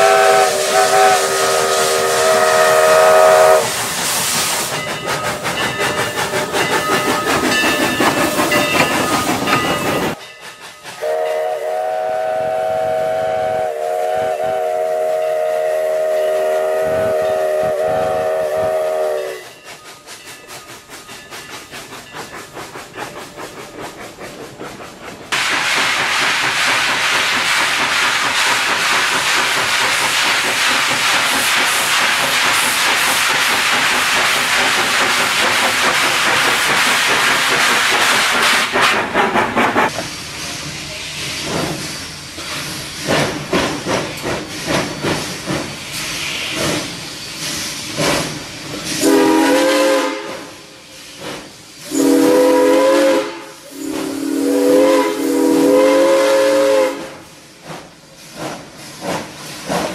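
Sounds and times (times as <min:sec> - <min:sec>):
steam locomotive whistle: 0:00.0 - 0:03.8, 0:10.9 - 0:19.6, 0:48.9 - 0:50.8, 0:51.8 - 0:57.3
steam engine working: 0:00.0 - 0:59.9
steam venting hiss: 0:00.0 - 0:59.9.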